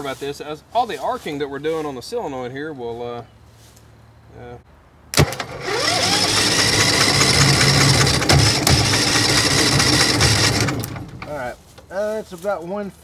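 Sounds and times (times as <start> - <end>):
engine starter cranking: 5.2 - 11.6.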